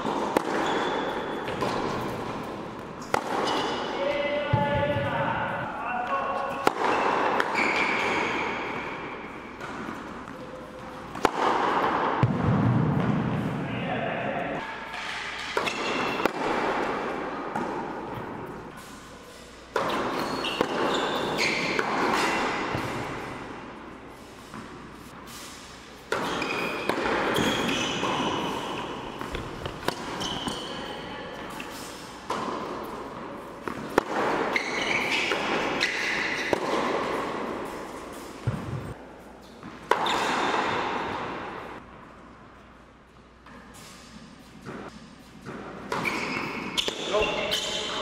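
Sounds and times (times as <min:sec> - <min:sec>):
tennis racket strikes: 0:00.0 - 0:03.9, 0:06.5 - 0:13.5, 0:14.9 - 0:18.9, 0:24.4 - 0:30.7, 0:31.5 - 0:38.9
shoes squeaking on court: 0:00.0 - 0:05.1, 0:06.2 - 0:11.3, 0:17.6 - 0:41.9, 0:43.2 - 0:48.0
tennis ball bounces: 0:06.6 - 0:13.4, 0:26.1 - 0:30.6, 0:38.1 - 0:38.9.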